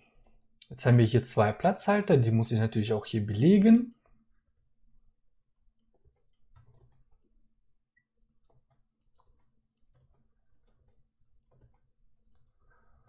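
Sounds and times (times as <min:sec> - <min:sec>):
keyboard typing: 0:00.1 - 0:00.6, 0:05.7 - 0:07.3, 0:08.0 - 0:12.8.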